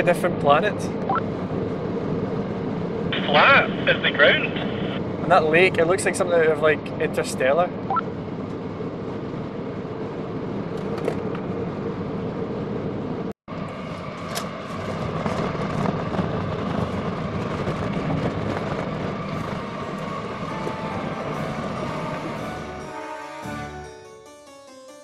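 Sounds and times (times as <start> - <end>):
car engine and tyre rumble: 0.0 - 22.8.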